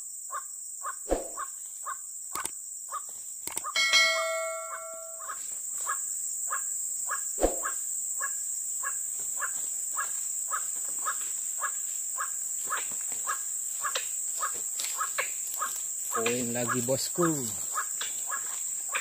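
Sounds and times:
high insect buzz: 0.0s - 19.0s
waterhen calls: 3.7s - 5.4s.

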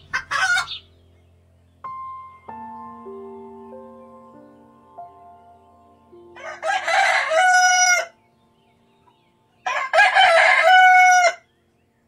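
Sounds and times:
rooster crowing: 6.4s - 8.2s, 9.6s - 11.5s.

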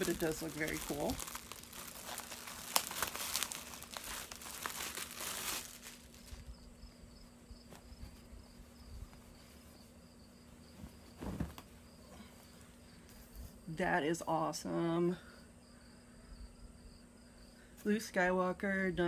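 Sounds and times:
fabric rustling: 0.0s - 6.5s, 7.6s - 13.6s
plastic bag crinkling: 0.0s - 6.6s.

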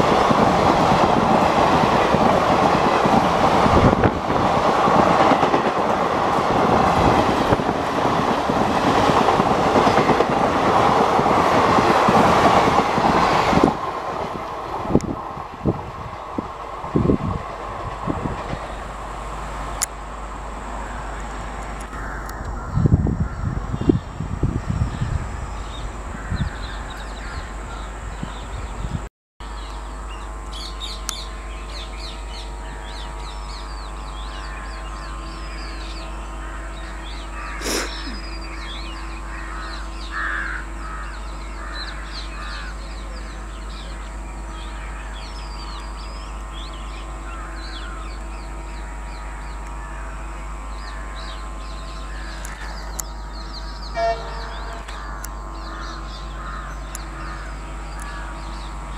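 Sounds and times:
steady background hum: 0.0s - 58.9s
low buffeting rumble: 14.4s - 37.6s, 38.2s - 58.9s
crows cawing: 21.9s - 23.4s, 36.4s - 38.6s, 39.2s - 43.0s, 47.2s - 48.2s, 48.8s - 51.4s, 52.1s - 53.0s, 54.0s - 58.7s.

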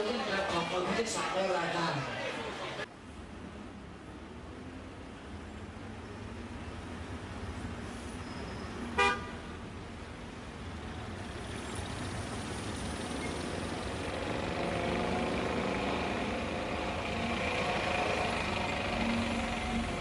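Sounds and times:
small motorised rickshaw engine: 10.9s - 20.0s.

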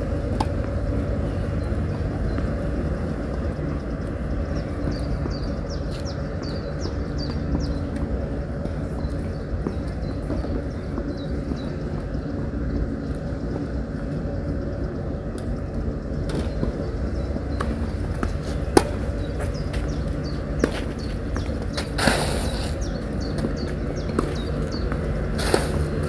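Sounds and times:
low outdoor rumble: 0.0s - 26.0s.

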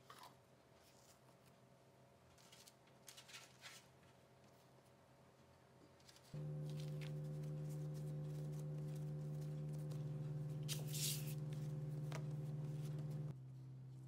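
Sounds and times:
soft background music chord: 6.4s - 13.3s.

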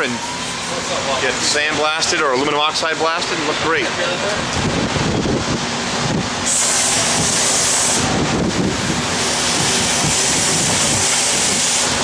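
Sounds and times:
air blow gun hissing: 6.4s - 12.0s.

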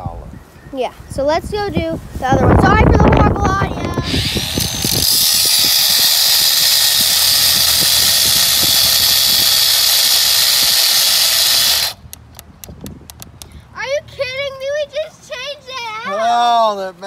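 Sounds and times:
angle grinder cutting steel: 4.0s - 12.0s.

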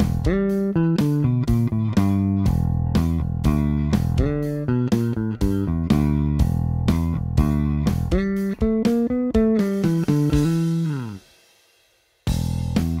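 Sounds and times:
electric bass played fingerstyle: 0.0s - 11.3s, 12.3s - 13.0s.

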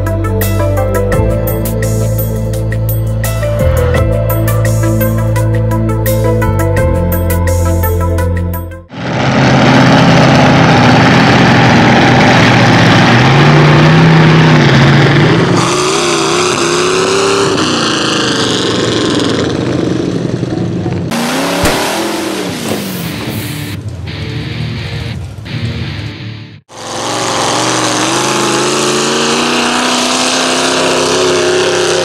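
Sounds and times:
truck engine revving hard: 8.9s - 23.8s, 26.7s - 32.0s.

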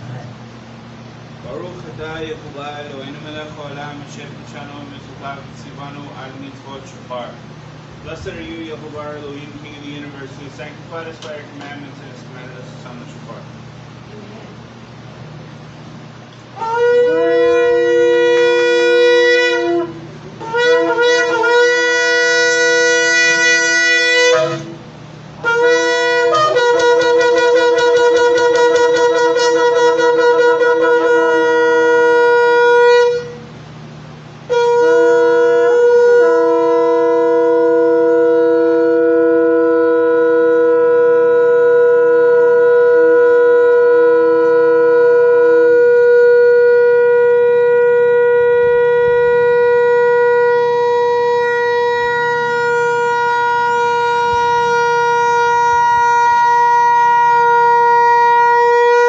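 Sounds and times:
ram's horns blown in held notes: 16.5s - 59.0s.

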